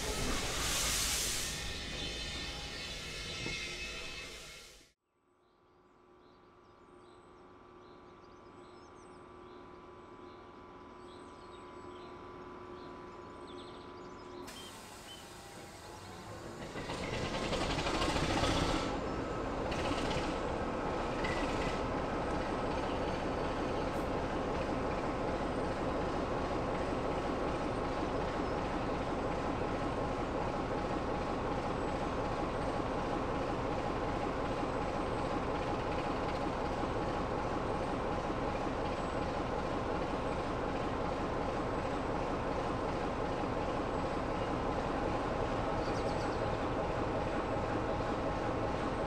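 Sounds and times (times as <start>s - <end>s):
locomotive diesel engine running: 11.8s - 49.0s.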